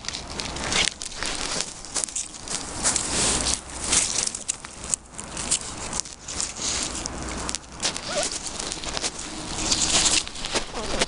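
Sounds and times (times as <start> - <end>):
puppy rustling through dry grass: 0.0 - 11.0
puppy squeak: 8.0 - 8.3.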